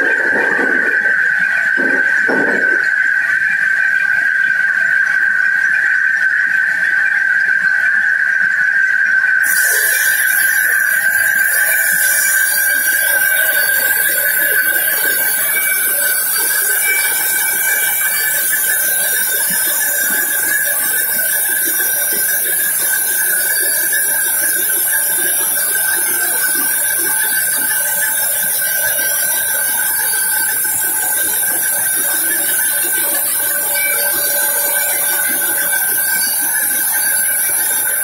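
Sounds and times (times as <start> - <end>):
band saw whining: 9.4 - 38.0.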